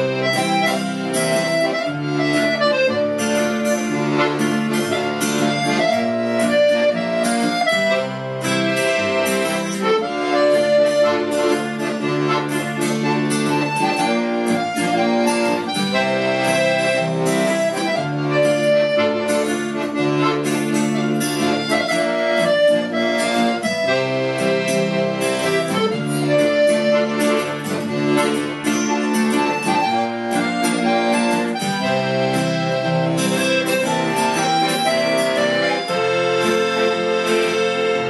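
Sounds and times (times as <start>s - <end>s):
acoustic guitar picking: 0.0s - 38.0s
button accordion melody: 0.0s - 38.0s.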